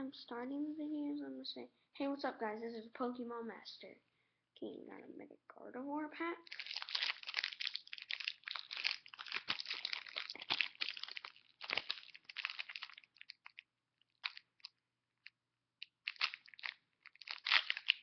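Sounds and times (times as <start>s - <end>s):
foil pack crinkling and tearing: 6.5s - 13.6s, 14.2s - 14.7s, 15.8s - 18.0s.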